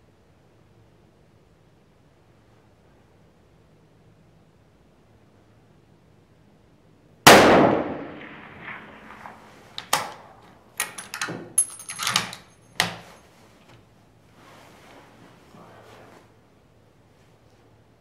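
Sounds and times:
rifle shot with echo: 0:07.3 - 0:10.4
rifle bolt metallic clicks: 0:08.2 - 0:13.0
brass case clinking on concrete: 0:10.7 - 0:13.3.

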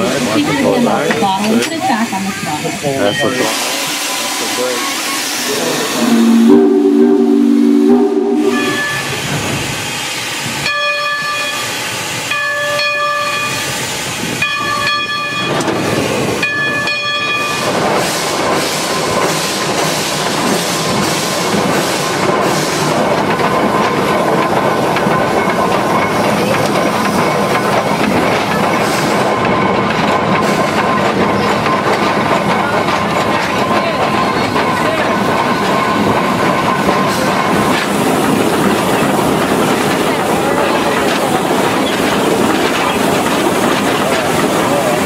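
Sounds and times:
rail clatter: 0:00.0 - 0:07.2, 0:08.0 - 0:45.0
steam hiss: 0:00.0 - 0:14.8, 0:17.4 - 0:29.5, 0:34.2 - 0:45.0
steam whistle blasts: 0:03.2 - 0:09.2.

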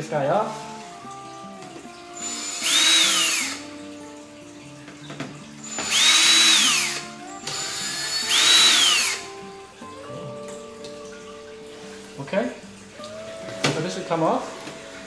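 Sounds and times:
cordless drill motor whine: 0:02.2 - 0:03.7, 0:05.6 - 0:09.3.

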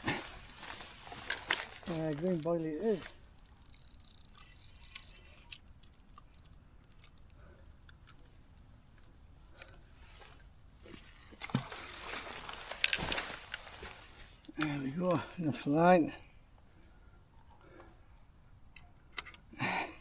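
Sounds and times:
fishing reel clicks: 0:02.8 - 0:05.6, 0:06.2 - 0:08.2.

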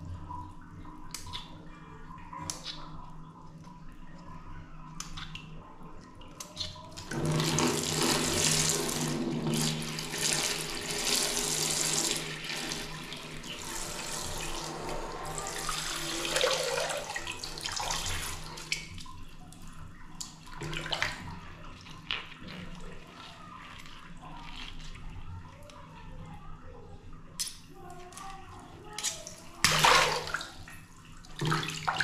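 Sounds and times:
water jet splashing into water: 0:29.6 - 0:30.7.

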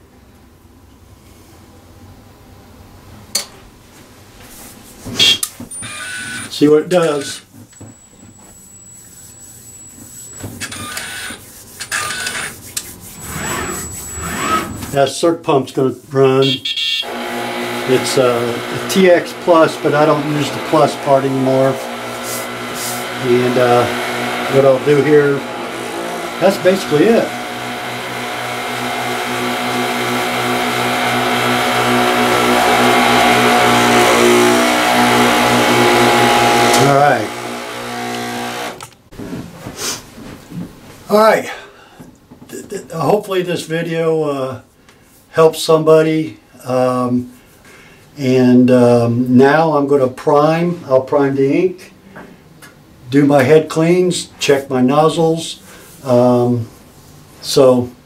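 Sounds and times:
printer motor whine: 0:05.8 - 0:12.5, 0:13.2 - 0:15.0, 0:17.0 - 0:39.0
pump humming with faint pulse: 0:13.1 - 0:14.9
printer carriage mechanism running: 0:13.2 - 0:15.0, 0:17.1 - 0:38.9.

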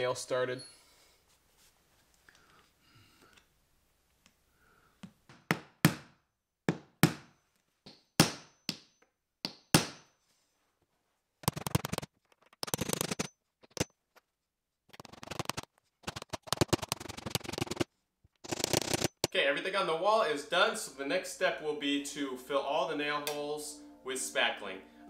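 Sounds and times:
hammer striking a nail: 0:05.3 - 0:10.1.

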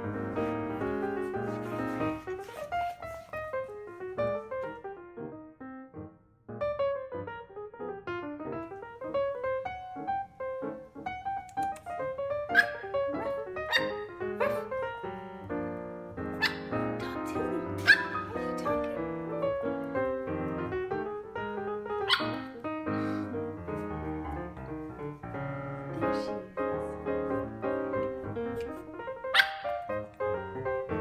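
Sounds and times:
piano music: 0:00.0 - 0:31.0
puppies yipping: 0:12.5 - 0:12.9, 0:16.4 - 0:16.8, 0:17.8 - 0:18.5, 0:29.4 - 0:29.8.

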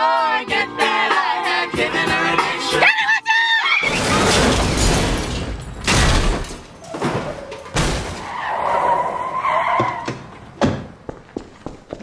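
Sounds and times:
car crash impacts: 0:03.8 - 0:08.9
tires screeching: 0:06.8 - 0:10.6.

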